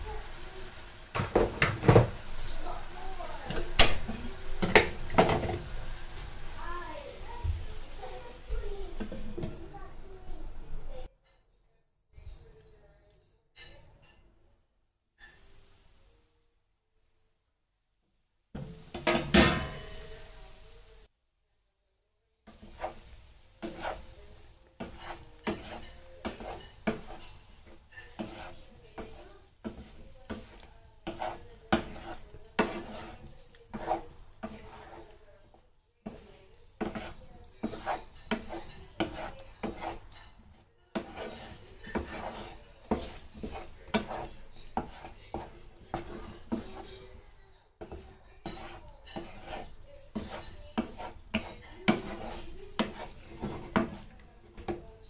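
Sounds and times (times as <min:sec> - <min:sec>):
sauce sizzling: 0:00.0 - 0:11.0, 0:15.3 - 0:16.4, 0:18.6 - 0:21.1, 0:22.5 - 0:54.9
wooden spatula scraping pan: 0:00.0 - 0:11.1, 0:18.6 - 0:20.5, 0:22.5 - 0:55.0.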